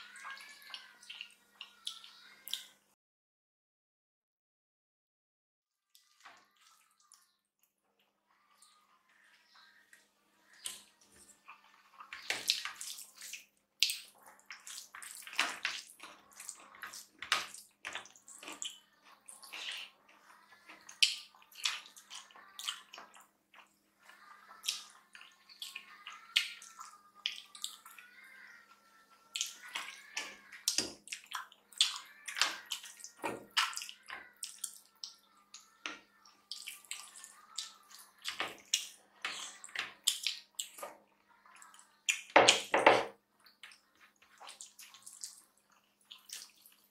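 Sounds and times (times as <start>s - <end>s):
chewing and lip smacks: 10.6s - 19.9s, 43.4s - 46.9s.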